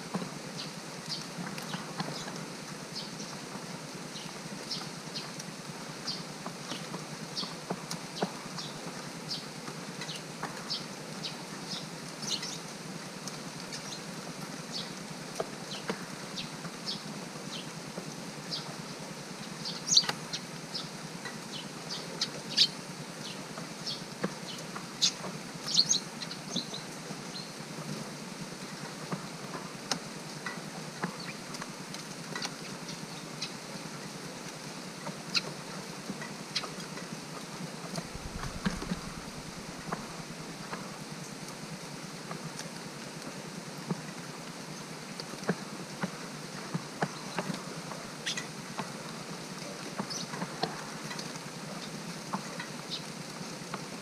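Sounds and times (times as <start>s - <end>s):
rain hiss: 0.0s - 54.0s
small birds chirping: 0.6s - 3.5s, 4.1s - 7.6s, 8.2s - 12.8s, 13.4s - 17.7s, 18.4s - 27.6s, 32.6s - 33.7s, 38.0s - 41.5s, 48.2s - 48.9s, 50.0s - 50.7s, 52.8s - 53.6s.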